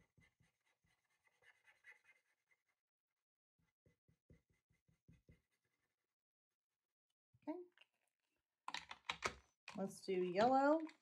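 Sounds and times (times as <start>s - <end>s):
paint marker scratching on paper: 0.0s - 2.8s, 3.8s - 6.0s.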